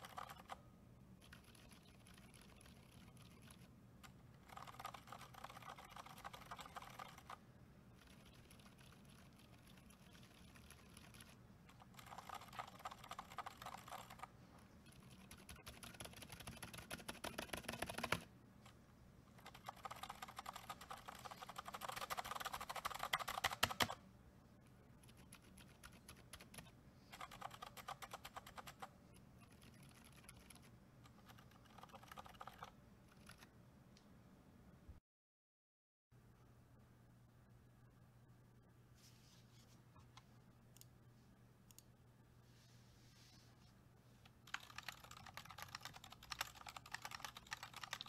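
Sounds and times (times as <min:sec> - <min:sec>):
muted keyboard keystrokes: 0:15.1 - 0:18.3, 0:19.4 - 0:24.0, 0:31.3 - 0:33.4, 0:44.5 - 0:48.0.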